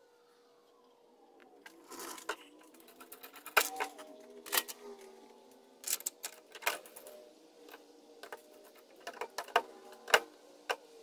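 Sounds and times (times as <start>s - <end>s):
faint steady hum: 0.0s - 11.0s
metal clicks and clinks: 5.8s - 10.2s.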